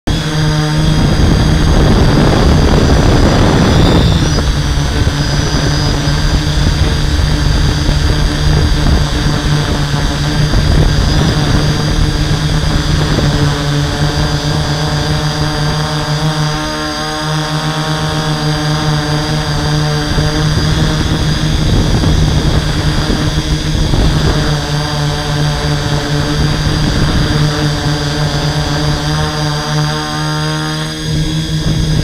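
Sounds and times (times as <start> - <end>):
drone propellers droning buzz: 0.0 - 32.0
rushing noise: 0.1 - 16.8.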